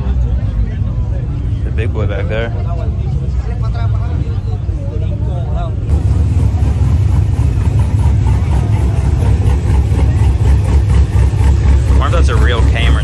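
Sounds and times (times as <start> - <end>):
car engine running: 5.8 - 13.0.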